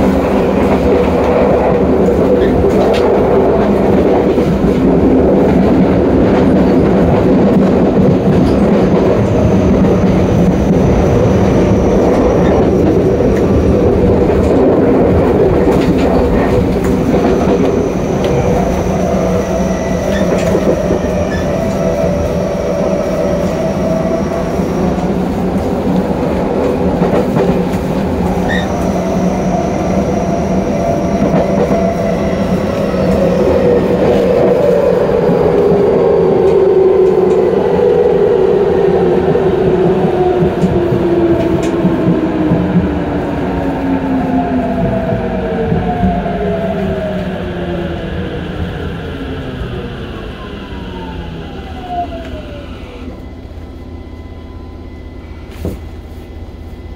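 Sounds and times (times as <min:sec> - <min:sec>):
train wheels rumbling on rail: 0:00.0 - 0:56.9
faint high whine: 0:50.4 - 0:56.9.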